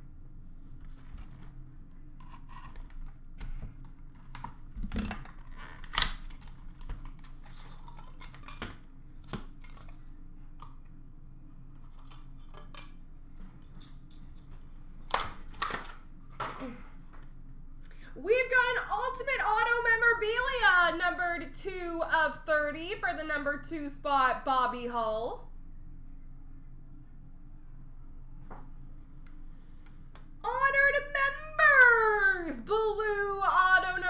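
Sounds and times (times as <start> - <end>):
faint low hum: 0.0 - 34.0
cardboard and plastic rustling: 0.7 - 10.1.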